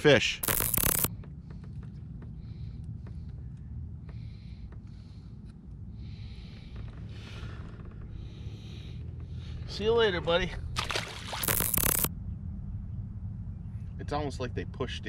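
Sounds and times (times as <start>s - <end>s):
steady low rumble: 0.0s - 15.0s
faint handling clicks and rustles: 0.4s - 9.9s.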